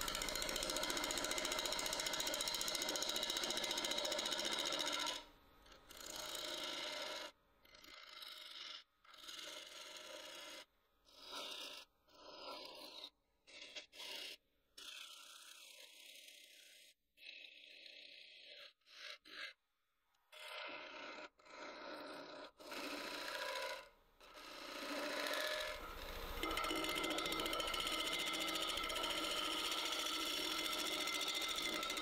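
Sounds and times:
gouge cutting wood on lathe: 0:00.0 - 0:05.3, 0:22.7 - 0:32.0.

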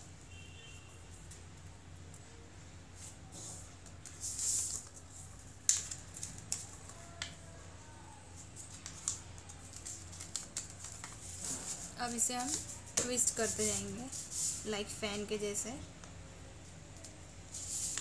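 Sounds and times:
paper rustling and crinkling: 0:03.2 - 0:07.4, 0:08.3 - 0:14.6, 0:17.5 - 0:18.0.

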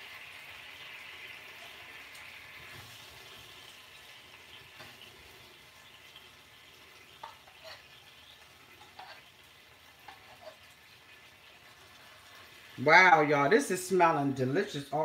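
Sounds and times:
oil sizzling in a skillet: 0:00.0 - 0:15.0
spatula scraping: 0:07.0 - 0:10.8.

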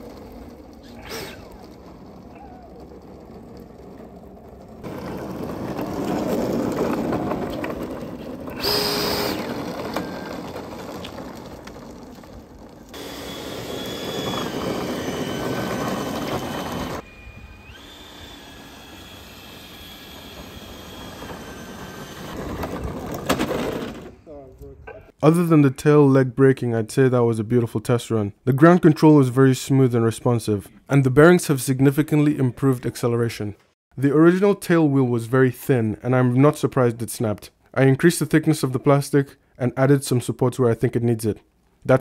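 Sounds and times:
small wheels rattling on asphalt: 0:00.0 - 0:17.0, 0:17.8 - 0:24.3
electric ducted fan whine: 0:13.0 - 0:22.4.

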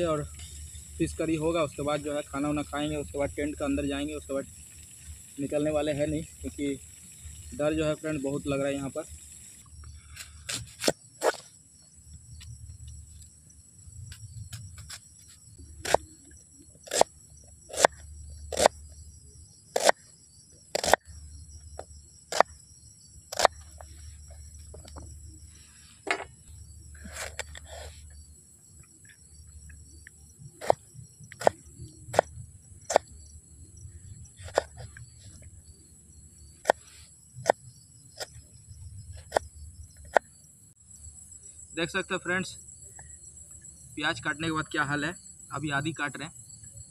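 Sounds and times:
crickets chirping: 0:00.0 - 0:46.9
knife chopping on wooden board: 0:19.8 - 0:20.0.

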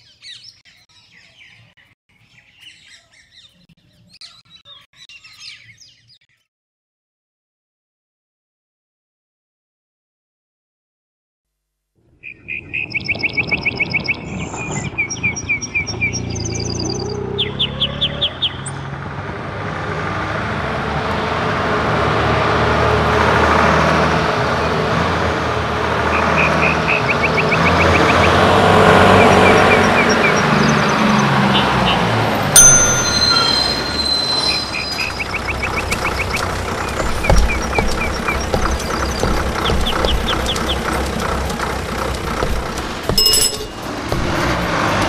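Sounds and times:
birds chirping in trills: 0:00.0 - 0:06.5, 0:29.0 - 0:45.0
diesel bus engine: 0:13.4 - 0:45.0
low small-engine hum: 0:21.6 - 0:45.0
brief high squeal: 0:32.6 - 0:35.2.

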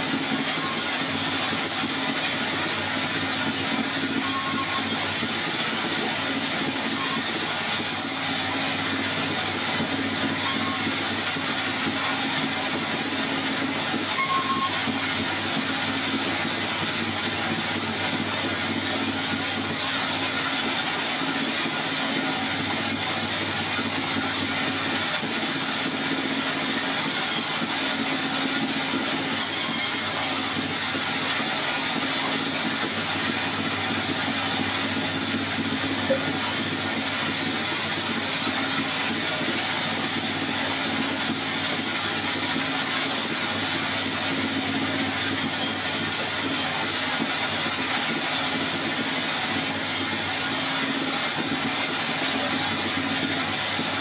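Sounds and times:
band saw cutting logs: 0:00.0 - 0:54.0.

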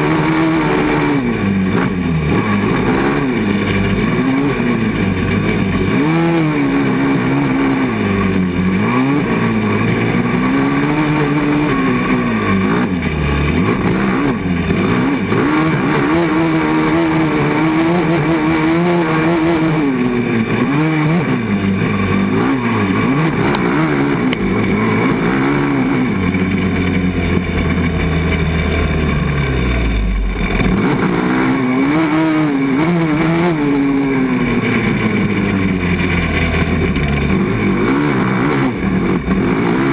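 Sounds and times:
quad engine revving: 0:00.0 - 0:39.9
heavy low rumble: 0:21.3 - 0:31.7.

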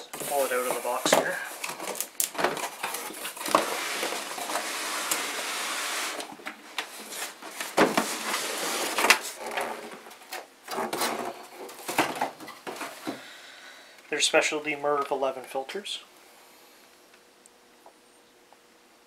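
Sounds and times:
cardboard scraping against metal: 0:00.1 - 0:06.3, 0:06.9 - 0:10.1.

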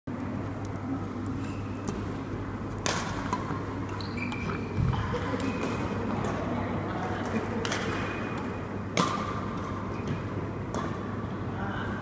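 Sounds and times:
racket striking shuttlecock: 0:02.8 - 0:04.0, 0:07.6 - 0:11.1
shoes squeaking on court floor: 0:03.5 - 0:05.8.

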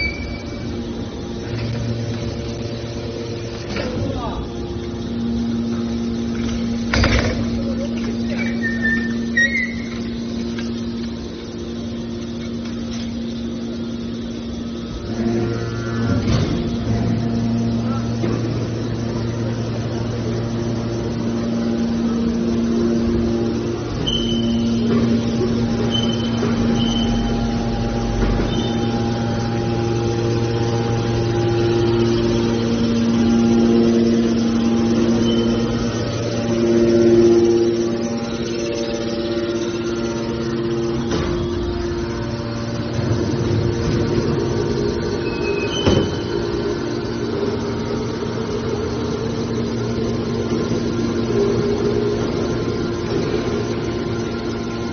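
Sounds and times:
high squeak: 0:00.0 - 0:00.6, 0:08.3 - 0:10.1, 0:24.0 - 0:24.8, 0:45.2 - 0:46.4
hydraulic power unit humming: 0:00.0 - 0:54.9.

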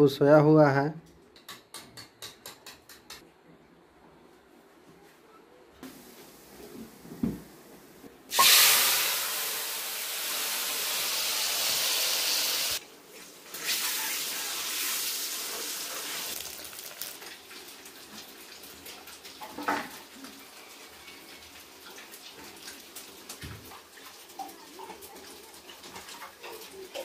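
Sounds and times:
eggs sizzling in hot oil: 0:08.3 - 0:12.8, 0:13.4 - 0:27.0.

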